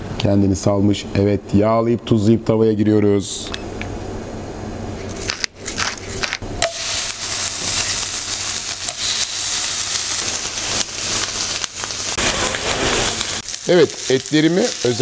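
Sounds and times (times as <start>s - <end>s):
steaks sizzling in a skillet: 6.6s - 15.0s.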